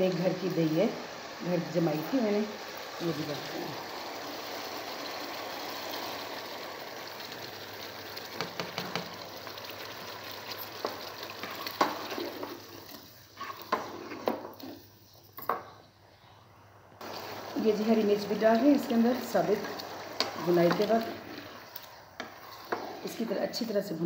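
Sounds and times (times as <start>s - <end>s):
gravy sizzling in a pot: 0.0s - 14.9s, 17.0s - 24.0s
spatula scraping a pot: 11.4s - 14.8s, 19.5s - 23.4s.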